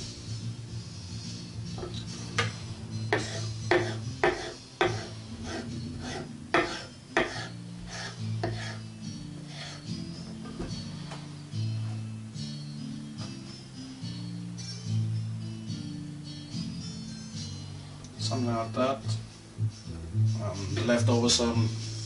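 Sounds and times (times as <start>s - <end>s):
knife chopping on wooden board: 2.4s - 8.8s.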